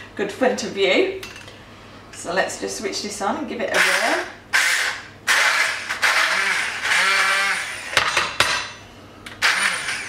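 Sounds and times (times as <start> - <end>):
stick blender pureeing: 3.8 - 8.0, 9.3 - 10.0.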